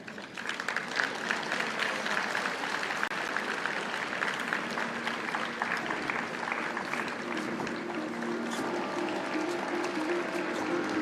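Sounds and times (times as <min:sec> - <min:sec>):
audience applauding: 0:00.0 - 0:11.0
faint music: 0:04.6 - 0:11.0.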